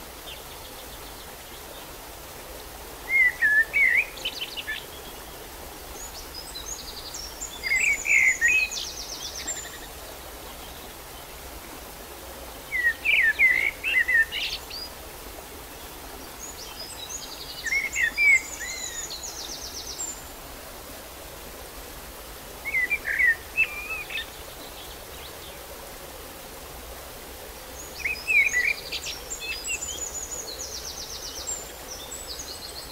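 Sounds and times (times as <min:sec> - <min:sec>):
outdoor background noise: 0:00.0 - 0:32.9
songbird singing: 0:03.1 - 0:11.3, 0:12.7 - 0:15.0, 0:15.8 - 0:20.4, 0:22.6 - 0:25.6, 0:27.6 - 0:32.9.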